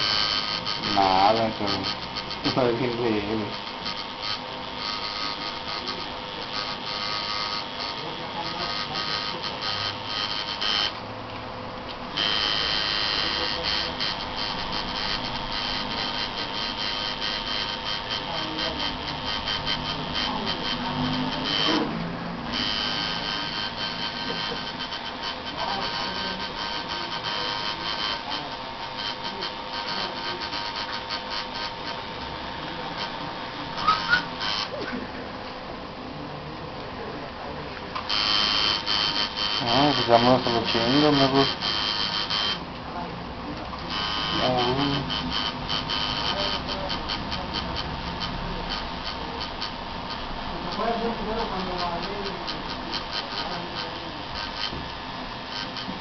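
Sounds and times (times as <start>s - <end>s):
tattoo machine buzzing: 0.0s - 35.2s, 37.9s - 56.0s
high-pitched chirps: 33.8s - 34.5s.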